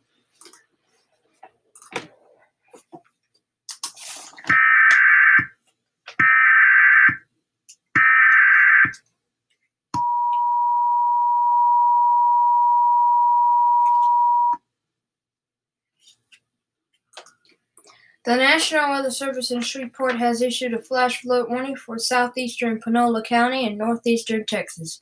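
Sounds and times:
two-tone attention signal: 10.0s - 14.6s.

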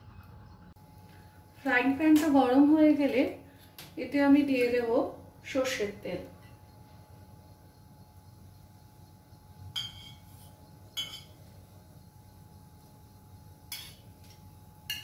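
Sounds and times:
steel bowl clinking on pan: 9.7s - 10.3s, 11.0s - 11.4s, 13.7s - 14.1s.

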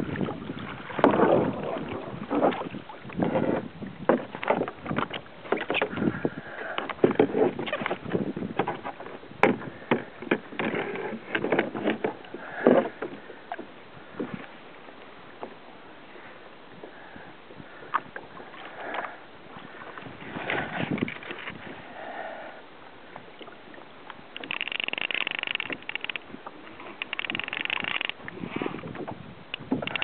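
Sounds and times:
water splashing against kayak hull: 0.0s - 30.0s.

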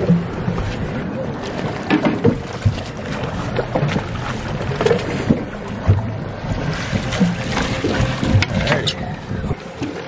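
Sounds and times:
choppy water slapping boat: 0.0s - 10.0s
knocks and splashes: 0.0s - 10.0s
wind buffeting microphone: 0.0s - 10.0s.

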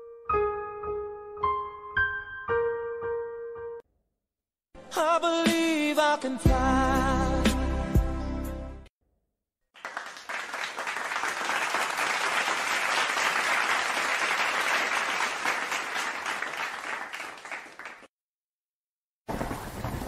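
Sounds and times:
applause: 9.7s - 18.1s.

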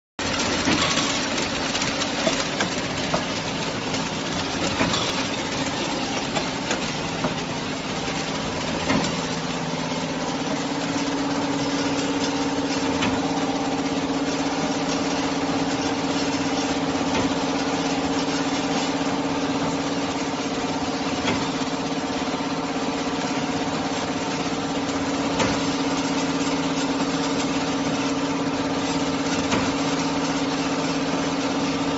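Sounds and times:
machine humming: 0.2s - 31.9s.

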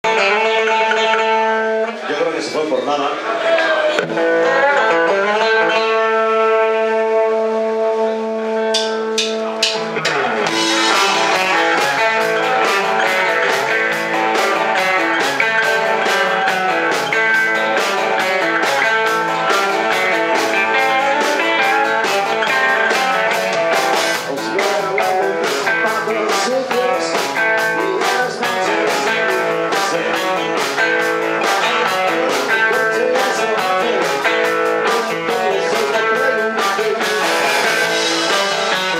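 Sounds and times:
live rock band playing: 0.0s - 38.9s
held guitar chord ringing: 4.2s - 24.1s.

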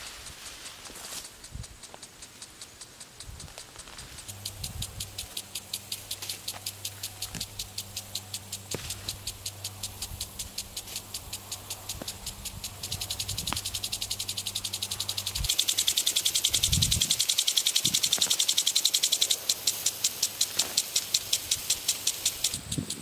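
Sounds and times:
field insects chirping: 0.0s - 23.0s
low steady hum: 4.1s - 17.2s.

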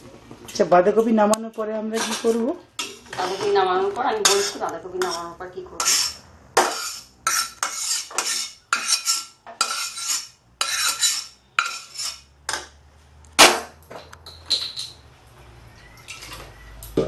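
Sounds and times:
metal spatula scraping a wok: 1.9s - 12.7s, 16.0s - 16.6s.

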